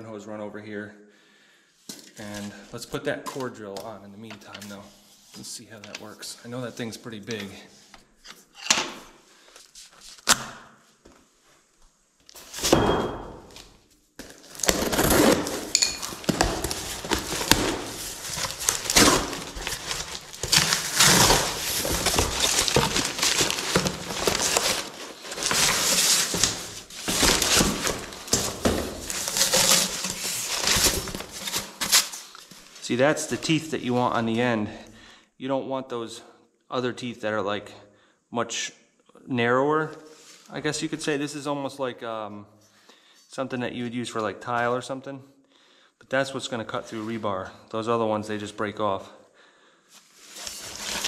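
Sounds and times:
packing paper rustling: 14.2s - 33.5s, 50.2s - 51.0s.

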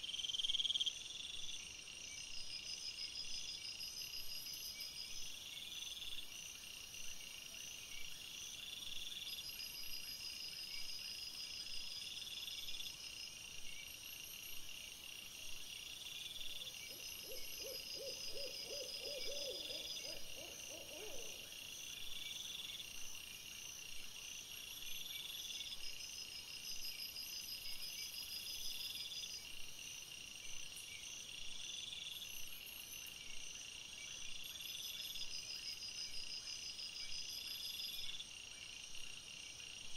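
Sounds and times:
crickets chirring: 15.7s - 23.0s.

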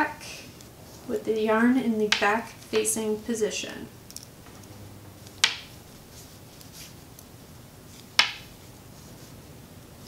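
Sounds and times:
knitting needles clicking: 3.6s - 5.7s.

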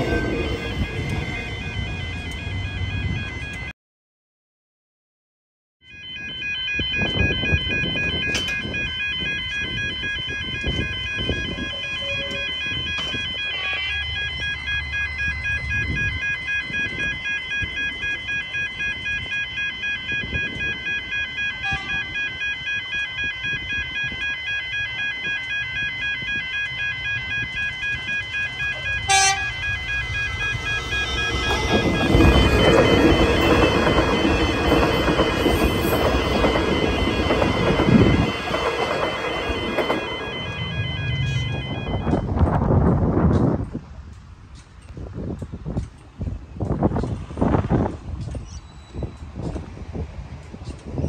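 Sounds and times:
electric train rumbling: 0.0s - 3.7s, 6.2s - 51.0s
level crossing warning bells: 0.0s - 3.7s, 5.8s - 44.2s.

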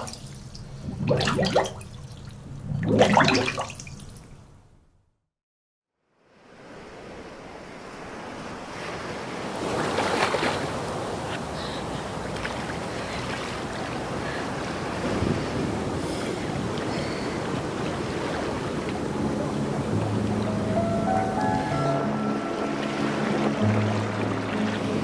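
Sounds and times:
sea surf washing: 6.4s - 25.0s.

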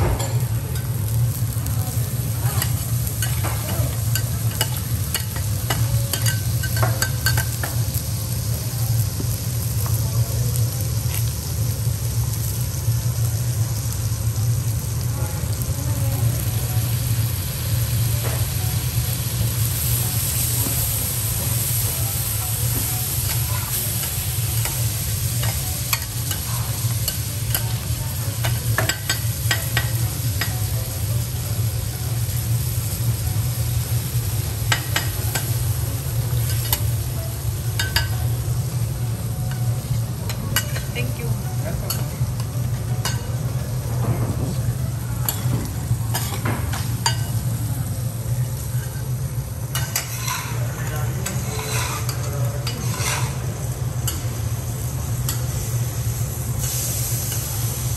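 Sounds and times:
seafood sizzling on a griddle: 0.0s - 57.9s
metal spatulas scraping and tapping: 49.7s - 50.6s, 51.2s - 53.4s.

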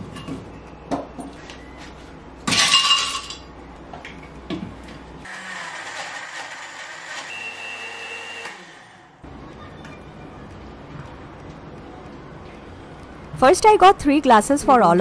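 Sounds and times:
blender running: 5.3s - 9.2s.

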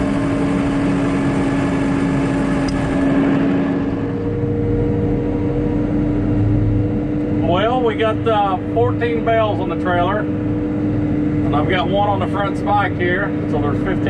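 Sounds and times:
tractor engine running: 0.0s - 14.0s.

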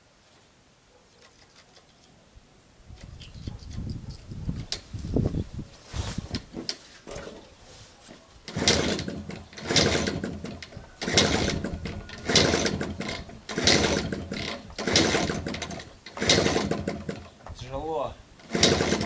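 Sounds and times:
motorcycle kick-start clatter: 8.5s - 17.6s, 18.4s - 19.0s.

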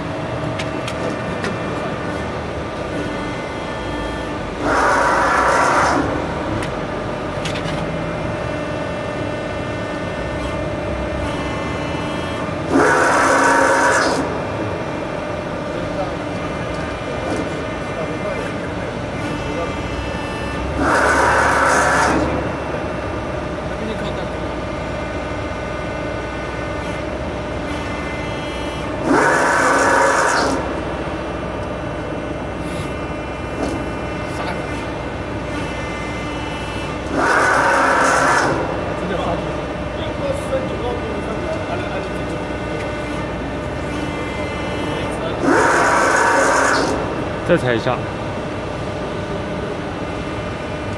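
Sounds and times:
hydraulic power unit humming: 0.0s - 50.9s
hydraulic whine with hiss: 12.7s - 14.3s, 29.0s - 30.7s, 36.6s - 38.7s
hydraulic hissing whine: 27.7s - 31.0s.

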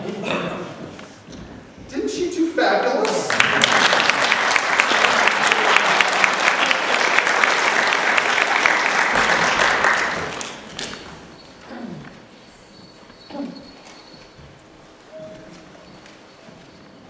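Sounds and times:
crowd applauding: 3.0s - 11.0s.

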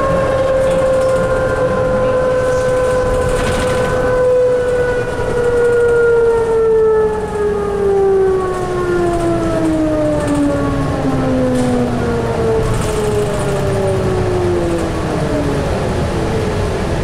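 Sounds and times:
bus drive whining: 0.0s - 17.0s.

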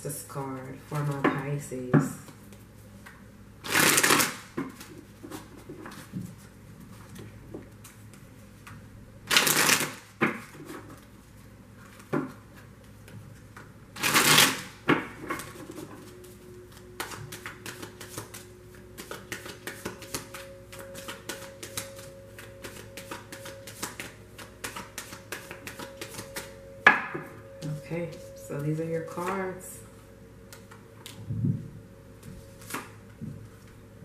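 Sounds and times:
cards flapping while shuffled: 3.6s - 6.5s, 9.3s - 11.1s, 14.0s - 14.7s, 15.4s - 26.6s.

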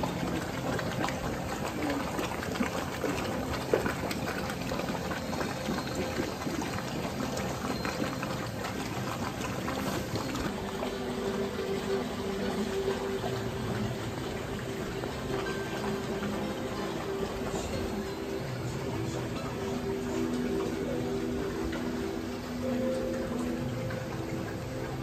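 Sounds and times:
water bubbling and splashing: 0.0s - 25.0s
steady low tones: 10.4s - 25.0s.

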